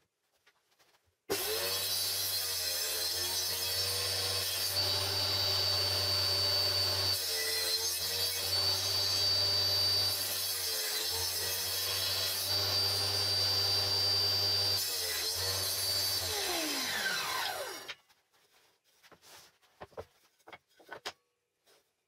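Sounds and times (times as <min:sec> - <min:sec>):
table saw cutting board: 0:01.3 - 0:18.0
saw blade spinning down: 0:16.0 - 0:18.0.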